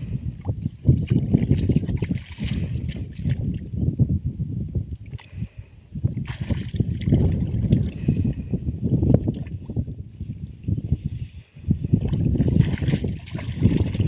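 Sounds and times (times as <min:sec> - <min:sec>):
wind buffeting microphone: 0:00.0 - 0:14.0
shallow water splashing: 0:00.9 - 0:03.6, 0:06.2 - 0:08.2, 0:12.0 - 0:14.0.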